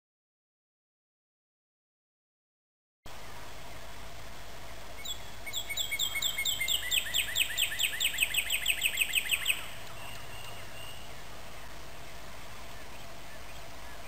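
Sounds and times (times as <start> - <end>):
songbird whistling trill: 5.0 - 11.2.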